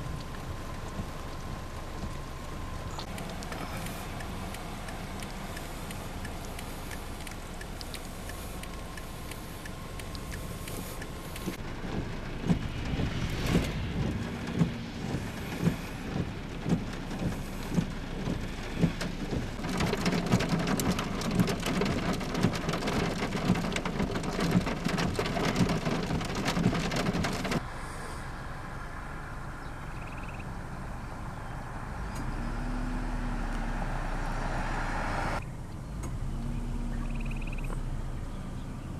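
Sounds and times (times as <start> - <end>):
heavy rain hiss: 0.0 - 29.4
hailstones striking hard surface: 13.5 - 27.6.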